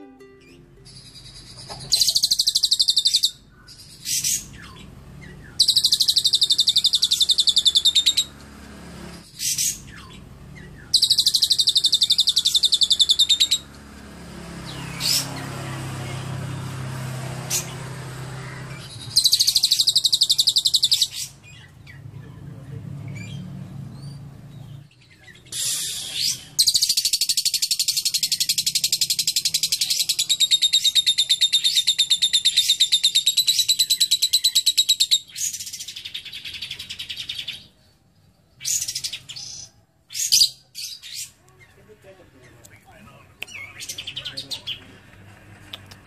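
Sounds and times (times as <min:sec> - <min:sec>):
bird chirps: 0:00.0 - 0:08.4, 0:09.1 - 0:13.9, 0:17.4 - 0:22.4, 0:23.0 - 0:44.9
bird chattering trill: 0:00.4 - 0:08.3, 0:09.2 - 0:13.8, 0:18.4 - 0:22.0, 0:25.2 - 0:37.7.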